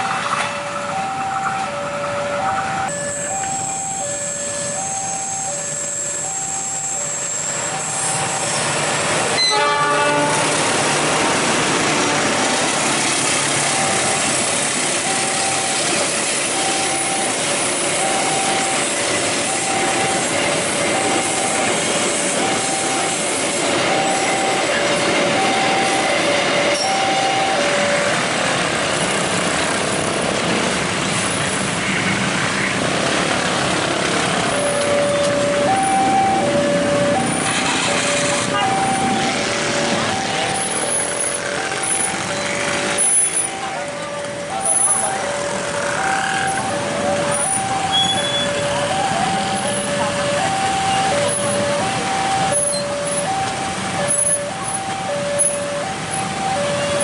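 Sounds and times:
freight train wheels rumbling: 0.0s - 57.0s
two-tone warning signal beeps: 0.9s - 8.8s, 13.7s - 14.3s, 15.0s - 28.2s, 34.4s - 57.0s.

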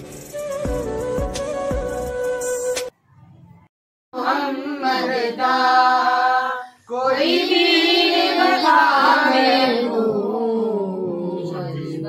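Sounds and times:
person chanting in wavering notes: 10.3s - 12.0s.

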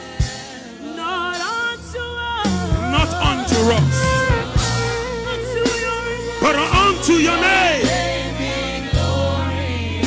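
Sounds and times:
gospel band playing: 0.0s - 10.0s
solo voice singing: 0.8s - 8.4s.

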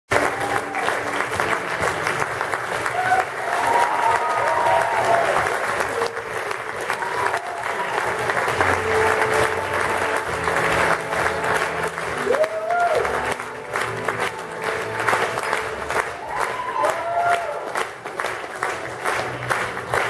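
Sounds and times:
audience applauding: 0.1s - 20.0s
music playing: 5.0s - 20.0s.

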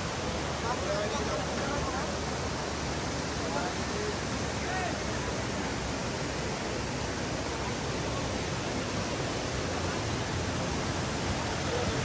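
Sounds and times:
waterfall rushing over boulders: 0.0s - 12.0s.

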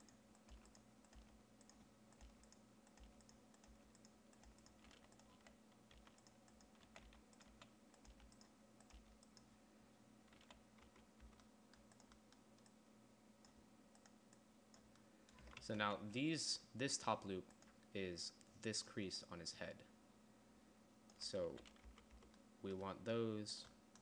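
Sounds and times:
computer keyboard keystrokes: 0.0s - 9.5s, 10.3s - 12.8s, 21.6s - 22.4s
low steady hum: 0.0s - 24.0s.

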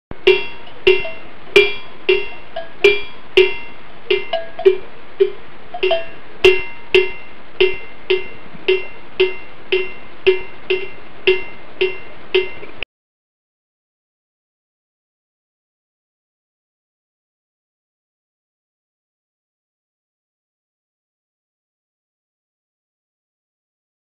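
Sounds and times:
constant hiss: 0.1s - 12.8s
cowbell clanking: 0.2s - 12.8s.

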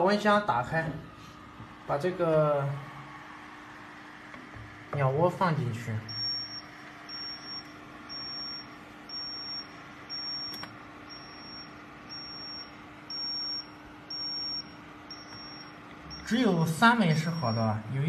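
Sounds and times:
fan hum: 0.0s - 18.0s
electronic alarm beeping: 6.0s - 17.9s.

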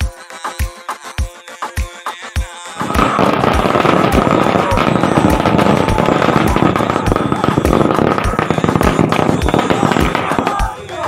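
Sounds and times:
music beat: 0.0s - 11.0s
firecrackers popping: 2.8s - 11.0s.

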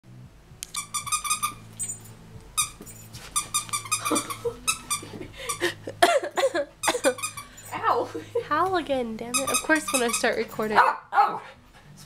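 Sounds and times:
dog toy squeaking: 0.7s - 5.6s, 6.8s - 7.9s, 9.3s - 10.8s.

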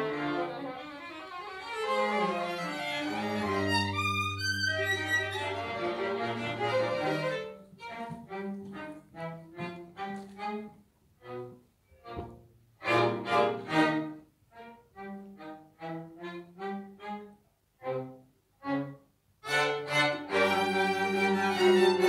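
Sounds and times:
string quartet playing: 0.0s - 22.0s.

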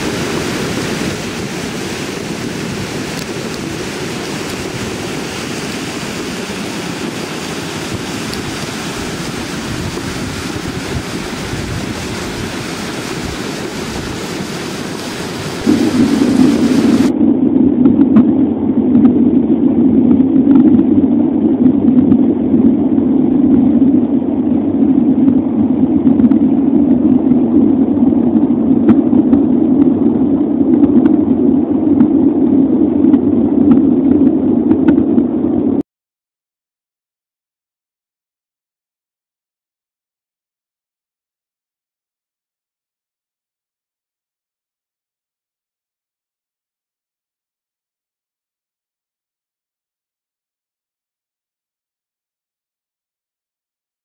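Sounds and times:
flooded torrent roaring over gravel: 0.0s - 17.1s.

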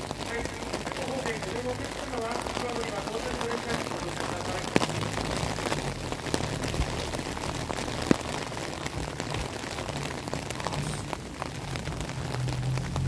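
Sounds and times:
heavy drops ticking: 0.0s - 13.0s
steady rain falling: 0.0s - 13.0s.

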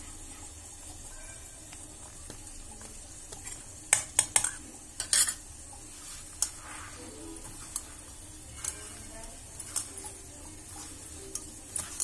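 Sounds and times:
spoon clinking against steel bowls: 3.5s - 5.4s, 7.2s - 12.0s.

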